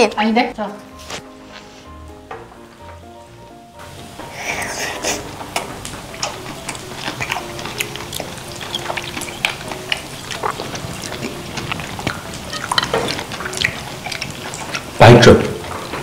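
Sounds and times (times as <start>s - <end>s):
wet chewing and lip-smacking: 4.4s - 16.0s.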